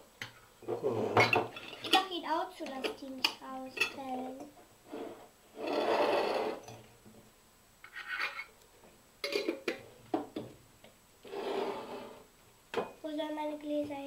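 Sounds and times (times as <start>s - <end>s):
plastic bowl scraping glass jars: 0.7s - 2.1s, 4.9s - 6.7s, 11.2s - 12.3s.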